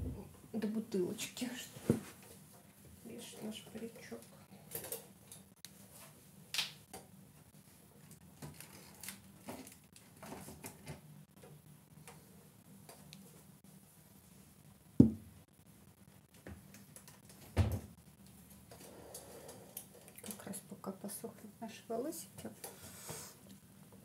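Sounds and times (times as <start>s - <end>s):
dull thumps: 15.0s - 15.3s.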